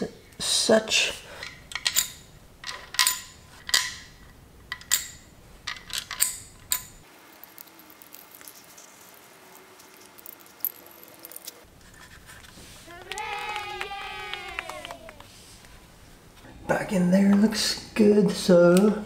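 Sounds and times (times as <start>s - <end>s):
metal parts clinking and tapping: 1.4s - 8.9s, 9.8s - 11.6s.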